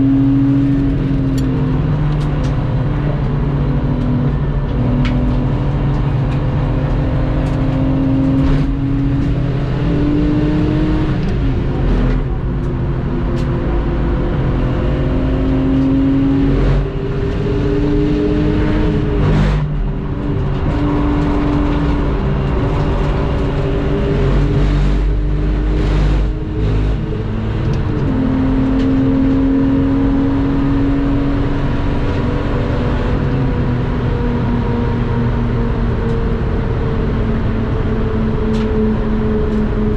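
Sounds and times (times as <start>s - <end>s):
car engine accelerating through gears: 0.0s - 39.9s.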